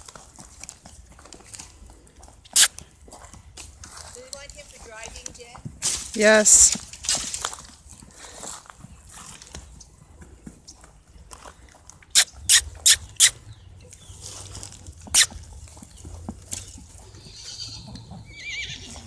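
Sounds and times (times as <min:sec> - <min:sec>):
horse snorting: 0:02.5 - 0:02.8, 0:14.8 - 0:16.4.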